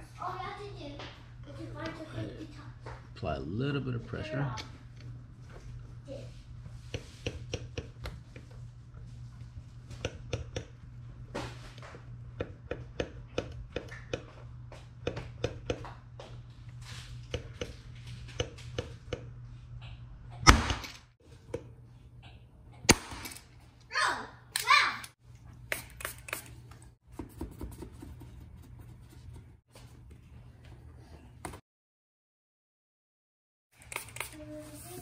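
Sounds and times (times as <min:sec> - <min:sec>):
dent lifter tool clicks and taps: 0:10.0 - 0:10.7.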